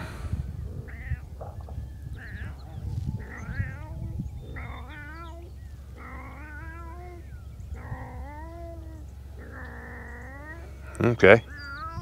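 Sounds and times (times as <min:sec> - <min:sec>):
cat yowling: 0:00.8 - 0:01.3, 0:02.2 - 0:10.8, 0:11.5 - 0:12.0.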